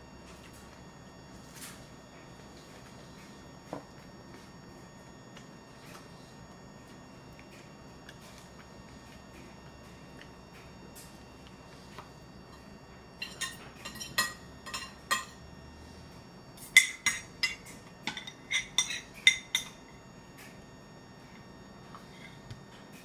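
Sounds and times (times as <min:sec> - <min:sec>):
spoon clinking against porcelain bowl: 0:13.2 - 0:15.4, 0:16.6 - 0:19.8.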